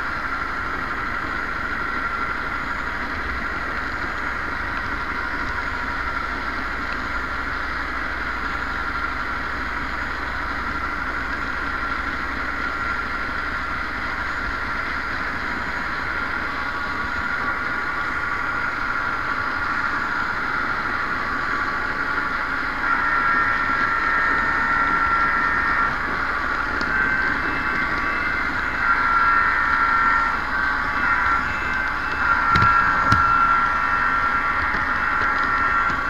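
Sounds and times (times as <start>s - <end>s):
model train motor whine: 0.0s - 36.0s
rolling wheel noise: 14.4s - 36.0s.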